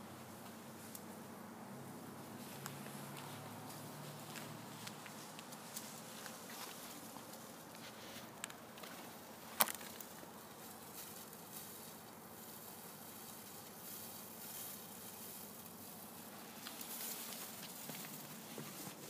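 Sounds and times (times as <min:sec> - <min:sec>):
faint outdoor ambience: 0:00.0 - 0:19.0
footsteps on gravelly asphalt: 0:02.4 - 0:10.2.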